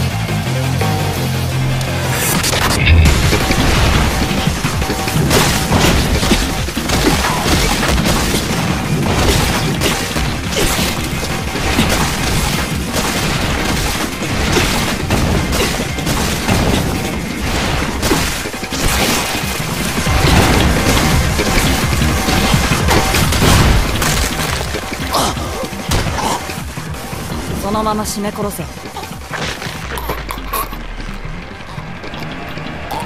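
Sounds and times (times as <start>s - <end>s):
action film score: 0.0s - 33.0s
crash and boom effects: 1.6s - 27.6s.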